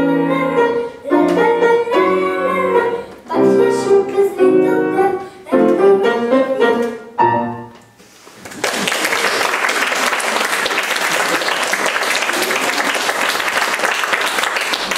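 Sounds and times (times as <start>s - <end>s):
boy singing: 0.0s - 7.0s
piano accompaniment: 0.0s - 8.0s
audience applauding: 8.4s - 14.9s.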